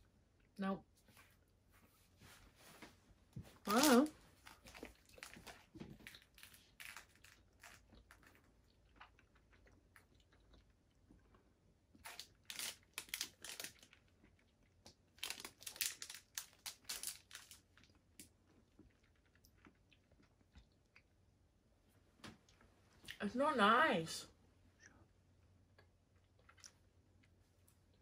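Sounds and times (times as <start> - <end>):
foil wrapper crinkling: 3.7 - 7.8, 12.0 - 14.0, 15.2 - 17.7
quiet chewing: 4.3 - 12.2, 17.4 - 21.3, 24.7 - 28.0.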